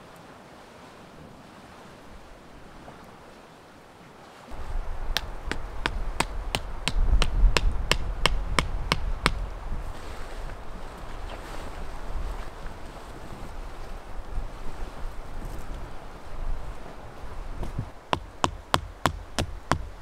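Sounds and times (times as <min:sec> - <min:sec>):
wind rumbling on microphone: 0:04.5 - 0:20.0
stake being hammered into ground: 0:05.1 - 0:09.4, 0:17.7 - 0:20.0.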